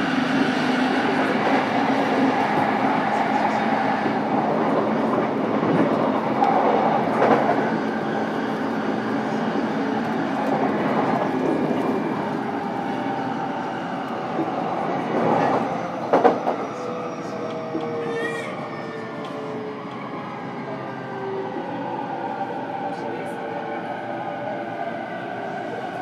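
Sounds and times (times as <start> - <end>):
train wheels rumbling on rails: 0.0 - 20.7.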